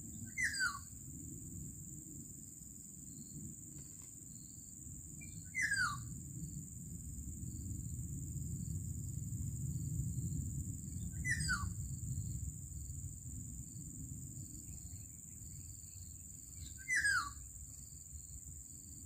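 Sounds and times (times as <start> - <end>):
bird harsh downward calls: 16.8 - 17.4.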